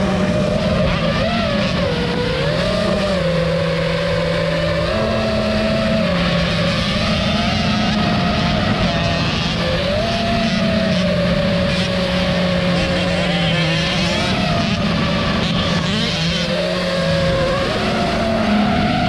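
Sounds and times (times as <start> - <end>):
dirt bike engine: 0.0 - 19.0
drone flying: 0.0 - 19.0.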